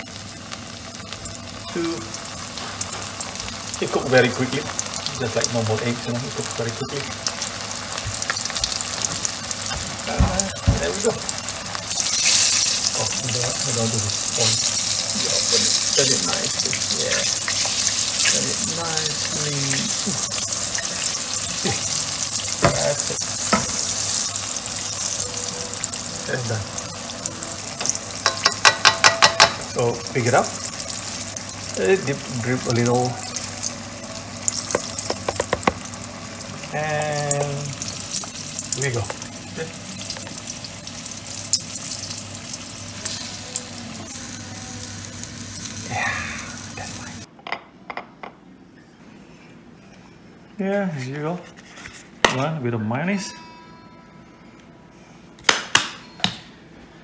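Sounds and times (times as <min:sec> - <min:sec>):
oil sizzling in a wok: 0:00.0 - 0:47.3
wooden utensil knocking on wok: 0:27.8 - 0:29.6, 0:34.7 - 0:35.8.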